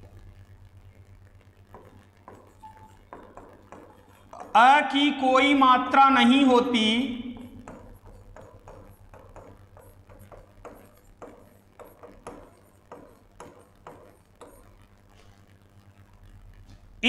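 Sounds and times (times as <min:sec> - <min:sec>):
low steady hum: 0:00.0 - 0:17.0
chalk tapping and scratching: 0:01.7 - 0:04.8, 0:07.4 - 0:15.4.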